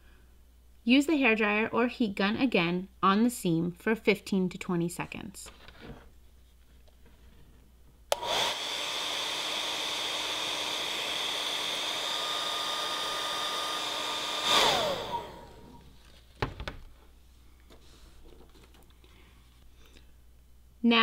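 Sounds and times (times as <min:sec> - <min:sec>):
hair dryer blowing: 0:08.1 - 0:15.9.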